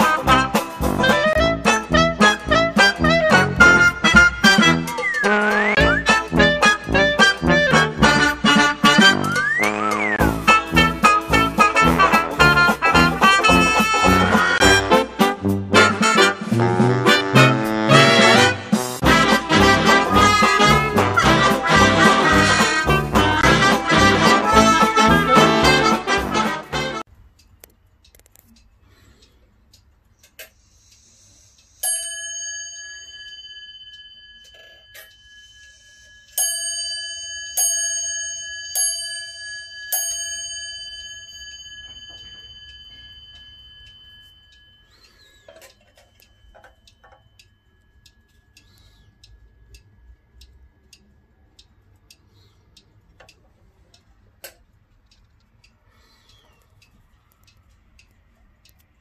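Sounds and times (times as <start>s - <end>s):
clock ticking: 0.0s - 32.4s, 33.8s - 59.0s
clock bell striking: 31.8s - 48.4s.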